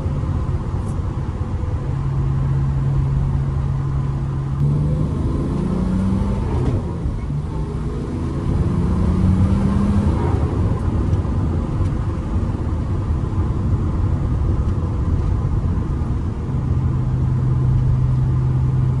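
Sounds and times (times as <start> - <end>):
car engine running: 0.0 - 19.0
road and tyre rumble: 0.0 - 19.0.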